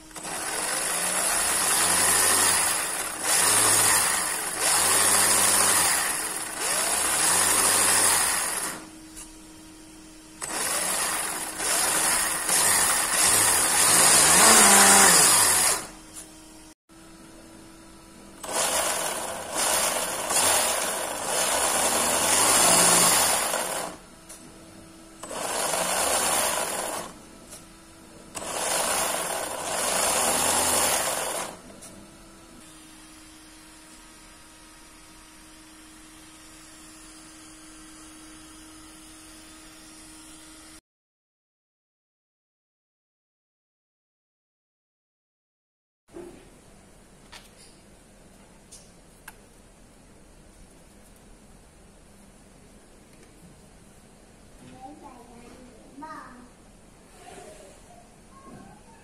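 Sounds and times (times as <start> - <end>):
toy truck electric motor whirring: 0.1 - 8.9, 10.4 - 16.0, 18.4 - 24.0, 25.2 - 27.2, 28.3 - 31.6.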